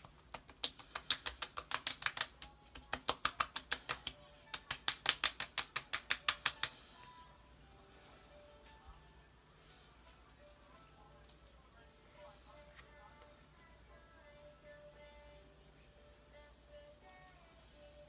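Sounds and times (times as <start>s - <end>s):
fingertips patting wet skin: 0.0s - 6.9s.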